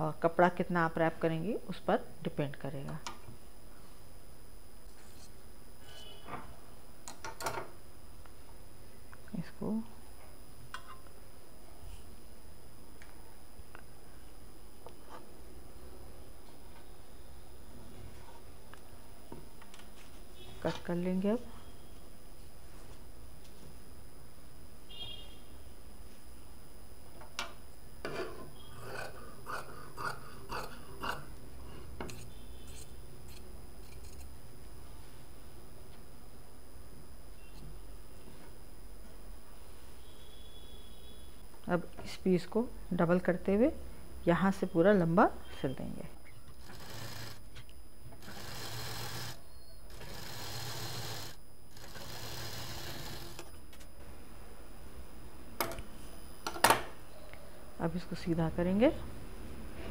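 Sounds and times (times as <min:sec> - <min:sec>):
scissors cutting cloth: 0:32.1 - 0:34.3
sewing machine stitching: 0:46.6 - 0:47.4, 0:48.2 - 0:53.4.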